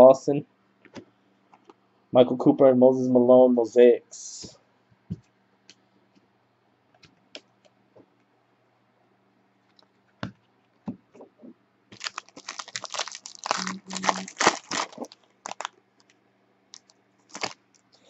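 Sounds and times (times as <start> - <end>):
foil wrapper tearing and crinkling: 11.9 - 16.1, 16.7 - 17.7.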